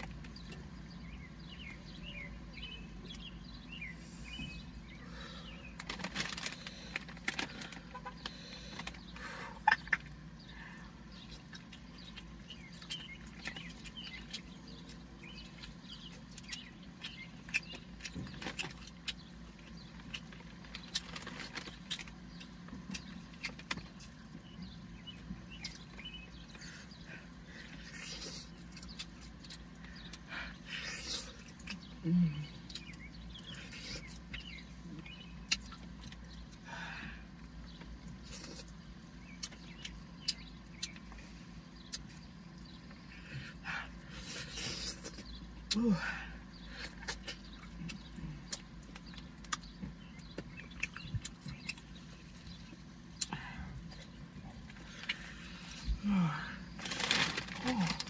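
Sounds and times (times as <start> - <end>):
low hum inside a car: 0.0 - 58.0
person chewing chicken: 11.0 - 24.5, 25.1 - 36.6, 37.2 - 45.9, 46.6 - 56.0
paper napkins rustling: 56.8 - 58.0.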